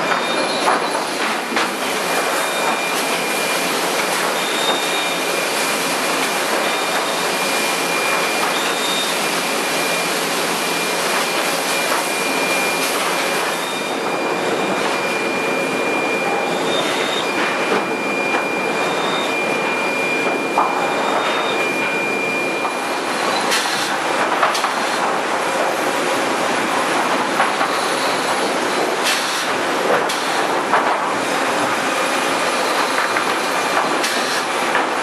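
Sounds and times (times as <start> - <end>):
thin high machine whine: 0.0 - 24.1
conveyor machinery clattering: 0.0 - 35.0.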